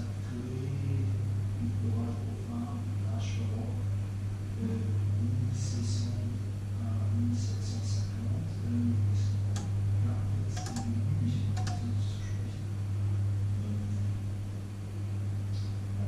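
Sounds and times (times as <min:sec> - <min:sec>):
microwave oven humming: 0:00.0 - 0:16.0
sharp ticks: 0:10.6 - 0:11.0, 0:11.6 - 0:11.9.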